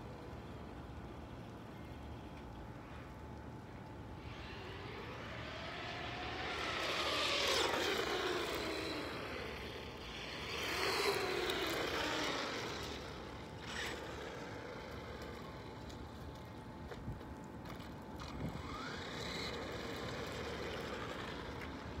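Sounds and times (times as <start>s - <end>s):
electric motor whine: 4.2s - 16.5s, 18.2s - 22.0s.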